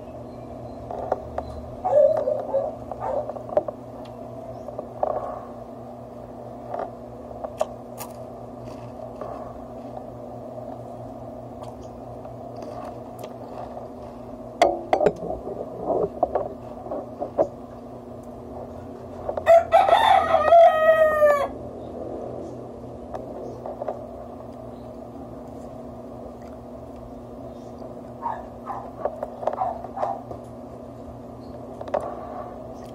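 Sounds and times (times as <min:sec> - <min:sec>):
rooster crowing: 0:19.4 - 0:21.6.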